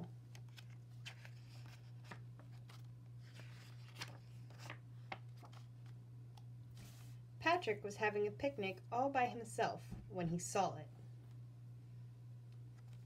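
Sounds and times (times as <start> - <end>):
steady low hum: 0.0 - 13.0
paper page rustling: 0.3 - 6.0, 12.7 - 13.0.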